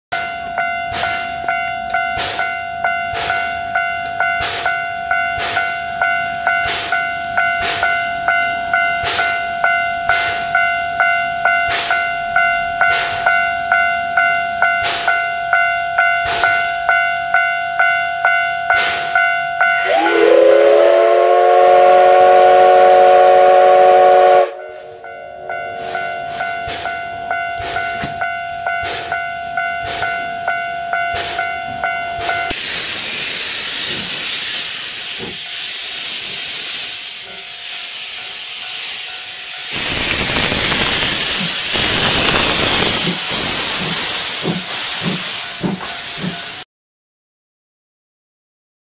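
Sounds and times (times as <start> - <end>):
level-crossing bell clanging: 0.1 - 20.4, 24.4 - 33.2
steam locomotive whistle: 18.8 - 27.0, 32.2 - 46.6
loud steam hissing: 19.8 - 27.0, 32.2 - 46.6
locomotive exhaust chuffs: 19.8 - 46.6.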